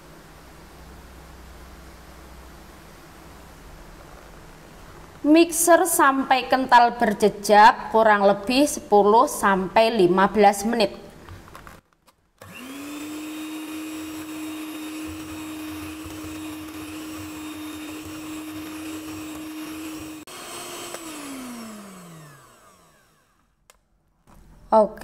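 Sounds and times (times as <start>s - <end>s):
electric hand mixer whirring: 12.4s - 23.6s.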